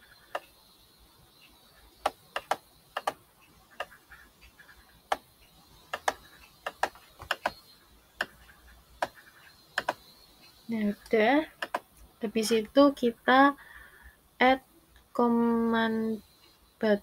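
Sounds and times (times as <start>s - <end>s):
computer mouse clicking: 0.0s - 0.6s, 2.0s - 12.1s.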